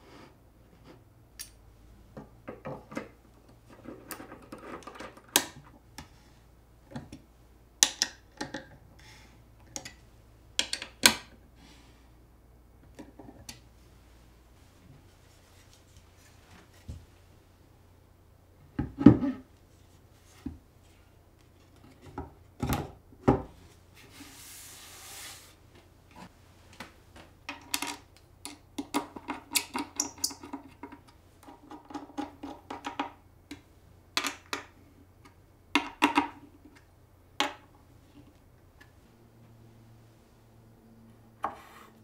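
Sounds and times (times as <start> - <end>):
short rub: 24.0 - 25.6.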